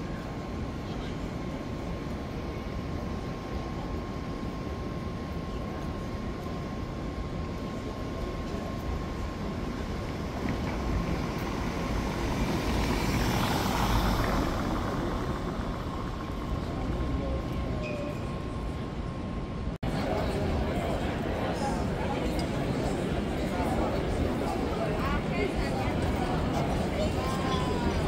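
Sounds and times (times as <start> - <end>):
traffic rumble: 8.2 - 28.0.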